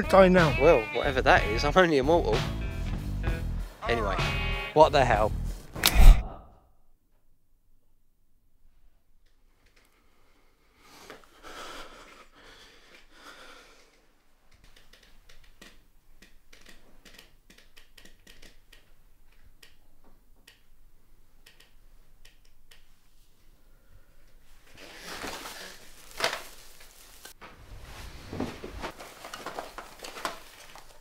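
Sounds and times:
faint irregular clicks and taps: 13.9 - 20.8, 21.4 - 22.9.

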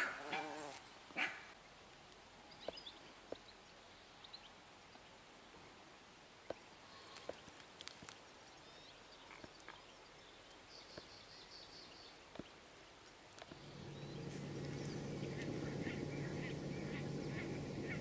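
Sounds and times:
dog barking: 0.0 - 0.6, 1.2 - 1.5.

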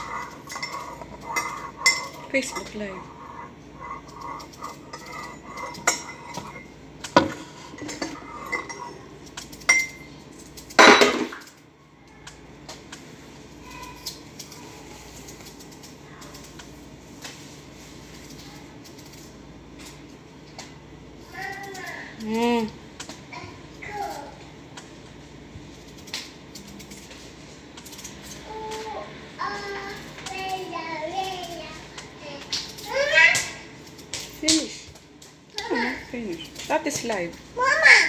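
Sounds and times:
dishes clattering: 0.0 - 2.8, 3.5 - 9.1, 10.8 - 11.5
dishes and utensils clinking: 0.0 - 2.9, 3.9 - 10.1, 10.7 - 11.5.

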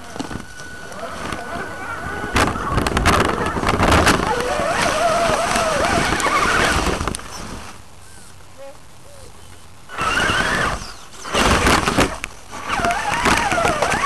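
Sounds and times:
electric motor whining: 0.0 - 7.4, 9.9 - 14.0
tyres crunching over leaves and rocks: 0.0 - 7.8.

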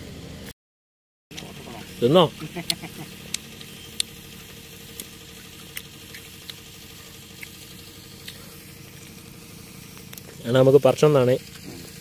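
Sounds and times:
crunchy fruit being chewed: 1.3 - 4.2, 4.8 - 9.2
steady low hum: 1.3 - 12.0.

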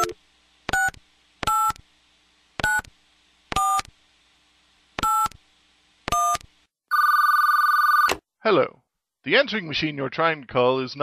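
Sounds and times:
telephone keypad beeps: 6.2 - 8.2.

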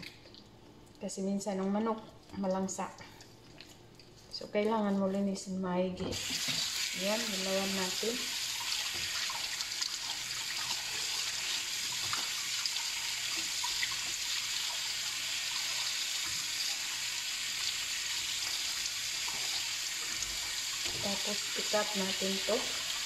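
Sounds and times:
kitchen tap running: 6.2 - 23.0.

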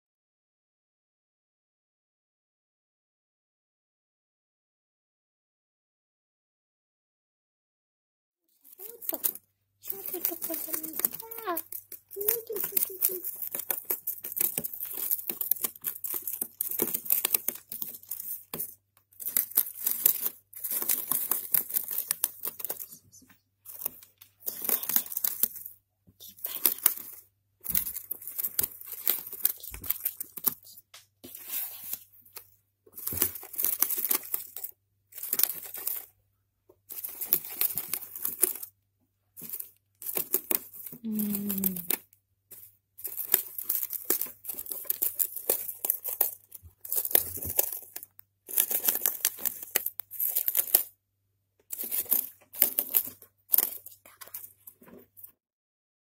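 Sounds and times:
gerbil gnawing cardboard: 8.6 - 22.9, 23.6 - 36.2, 36.8 - 41.5, 42.5 - 50.9, 51.7 - 55.1.

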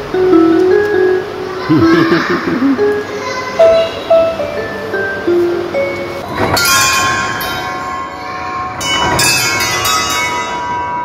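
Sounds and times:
bell-like chimes ringing: 5.8 - 11.0.

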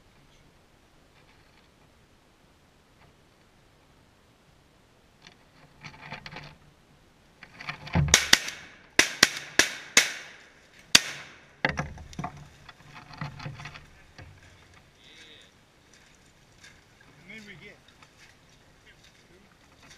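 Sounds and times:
shotgun shots: 8.1 - 11.5.

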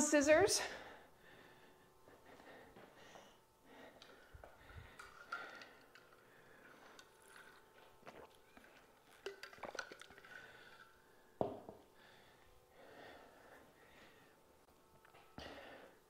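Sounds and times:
bottle thumping on floor: 11.4 - 11.8.

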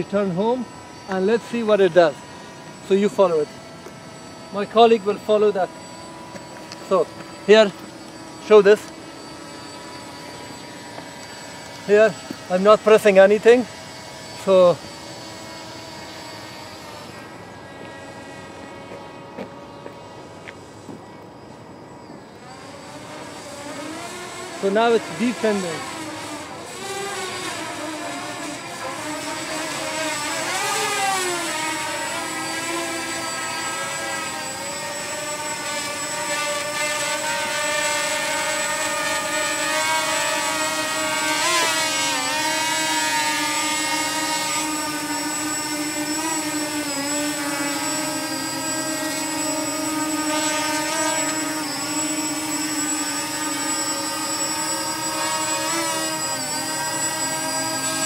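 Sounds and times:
quadcopter propellers whining: 0.0 - 58.0.

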